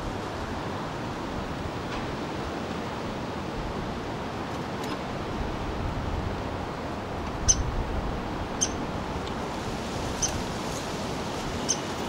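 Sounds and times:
woodpecker peeps: 7.4 - 7.7, 8.6 - 8.8, 11.6 - 11.9.

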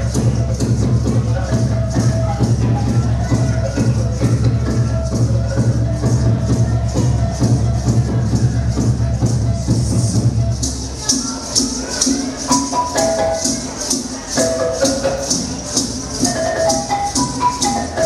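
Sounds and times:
shaker beat: 0.0 - 18.0
melody of held notes: 10.6 - 18.0.

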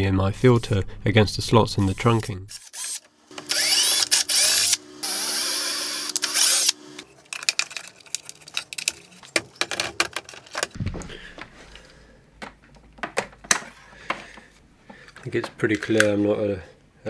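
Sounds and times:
drill motor whine: 2.7 - 7.0.

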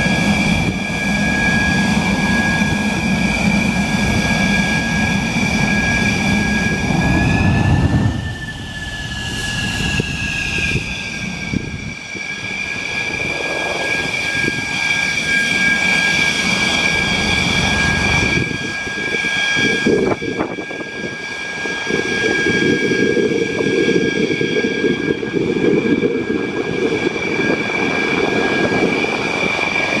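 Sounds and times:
jet engine turbine whine: 0.0 - 30.0
low engine rumble: 3.6 - 10.9.

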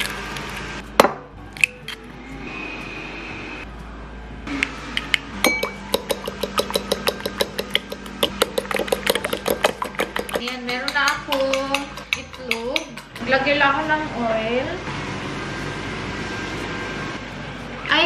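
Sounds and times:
utensil clinking against glass bowl: 5.4 - 13.3.

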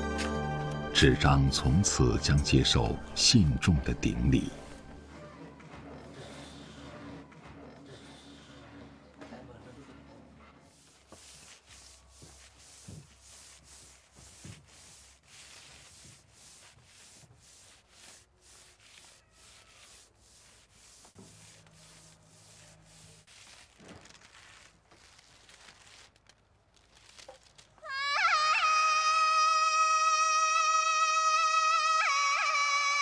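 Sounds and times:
paper rubbing on wooden block: 4.6 - 27.6.

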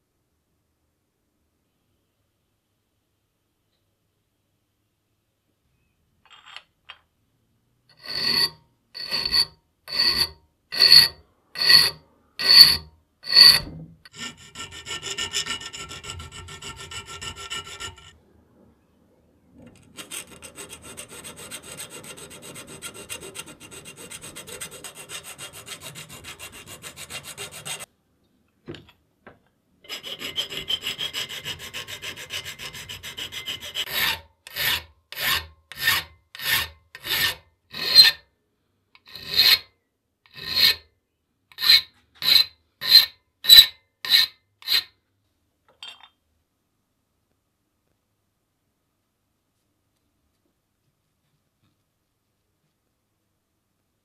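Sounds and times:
hand file rasping metal: 7.9 - 18.2, 20.0 - 27.9, 29.9 - 38.2, 39.0 - 39.7, 40.3 - 40.8, 41.5 - 44.9.

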